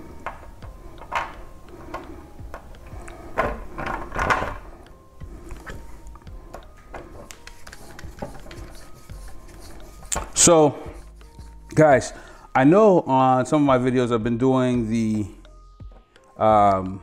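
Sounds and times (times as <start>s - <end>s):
faint background music: 0.0s - 17.0s
clicks of small parts and tools: 0.2s - 4.6s.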